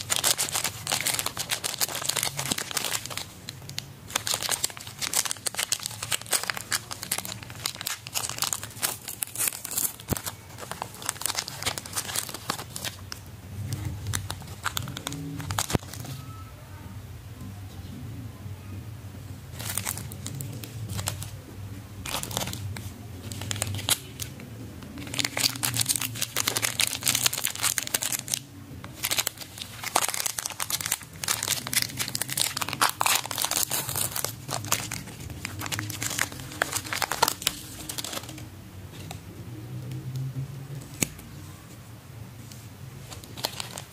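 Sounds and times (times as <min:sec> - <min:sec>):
plastic wrapper crinkling and tearing: 0:00.0 - 0:16.4, 0:19.5 - 0:21.4, 0:22.0 - 0:39.2, 0:43.0 - 0:43.9.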